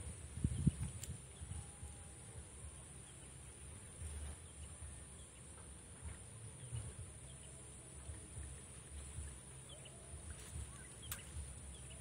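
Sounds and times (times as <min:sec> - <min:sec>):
wind buffeting microphone: 0:00.0 - 0:02.8
steady high-pitched whine: 0:00.0 - 0:12.0
faint bird chirps: 0:00.1 - 0:12.0.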